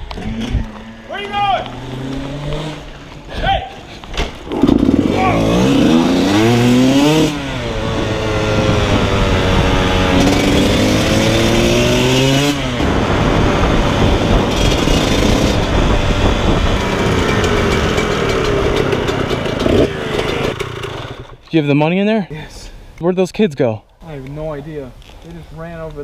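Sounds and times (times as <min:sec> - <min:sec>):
dirt bike engine running: 0:04.4 - 0:21.4.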